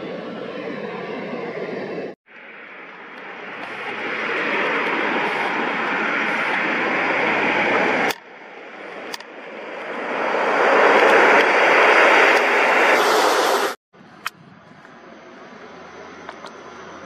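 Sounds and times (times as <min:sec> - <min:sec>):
turboprop plane engine and propeller: 0:00.0 - 0:17.0.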